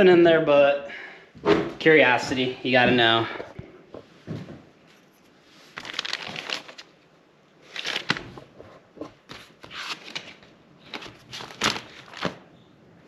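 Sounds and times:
paper rustling: 5.5s - 6.9s, 7.6s - 12.4s.

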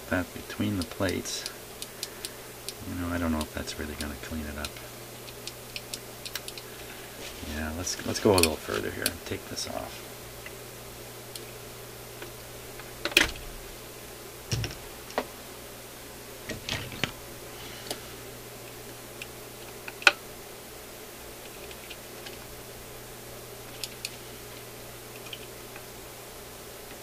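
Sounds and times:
low steady hum: 0.0s - 27.0s
small metal parts clicking: 4.0s - 6.7s.

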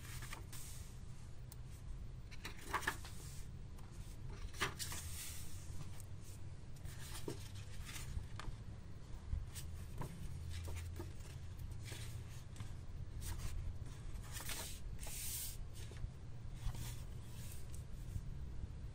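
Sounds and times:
paper pages rustling: 0.0s - 0.9s, 2.3s - 8.5s, 9.5s - 16.0s
low steady hum: 0.0s - 18.9s.

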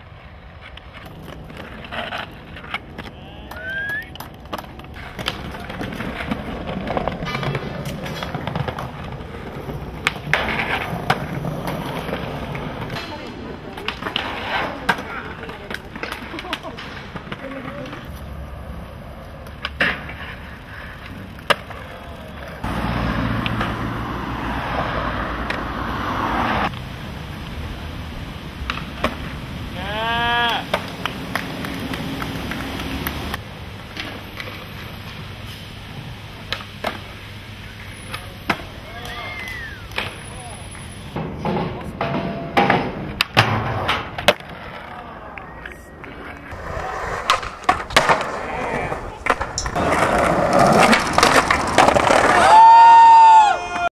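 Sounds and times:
skateboard board cracking: 0.0s - 22.8s, 28.6s - 34.6s, 42.7s - 45.0s, 45.6s - 53.9s
skateboard wheels rolling on concrete: 0.0s - 53.9s
skateboard pop and landing clacks: 41.4s - 44.9s, 46.5s - 52.5s.

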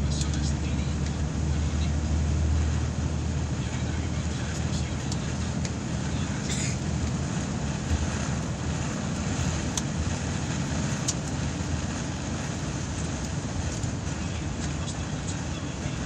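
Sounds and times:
bus engine and tyres rumbling: 0.0s - 16.0s.

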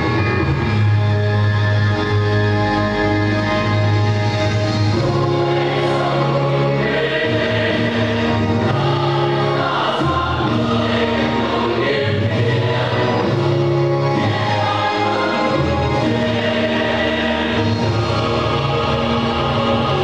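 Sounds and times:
musical accompaniment with bass line: 0.0s - 20.0s
choir singing: 4.6s - 20.0s.

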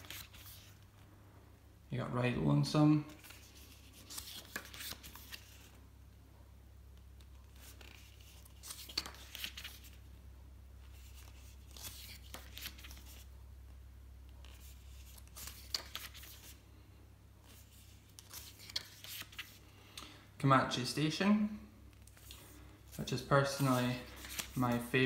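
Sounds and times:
paper pages turning: 0.0s - 0.8s, 3.1s - 5.8s, 7.2s - 10.0s, 10.8s - 13.3s, 14.3s - 16.6s, 17.4s - 19.7s, 21.9s - 25.0s.

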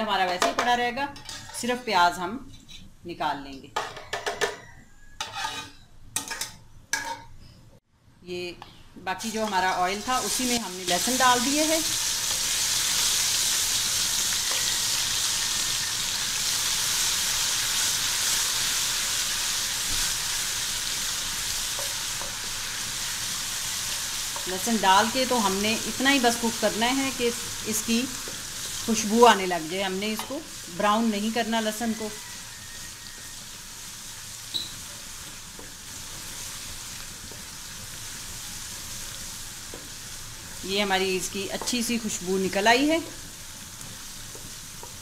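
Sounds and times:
garlic sizzling in hot oil: 9.1s - 45.0s.

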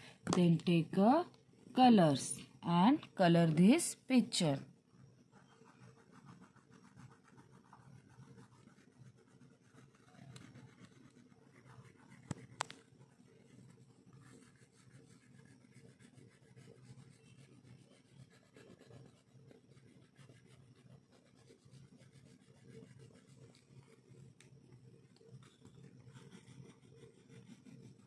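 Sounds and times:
pen scratching on paper: 5.3s - 24.4s, 25.0s - 28.0s.

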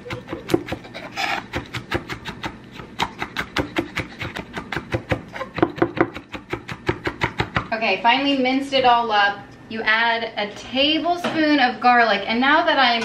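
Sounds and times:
knife chopping on wooden board: 0.0s - 0.8s, 1.4s - 7.7s.

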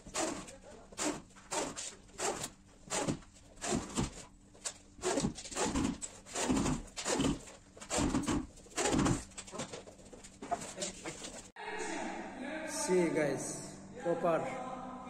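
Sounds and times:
electric drill driving screws: 5.0s - 9.3s.

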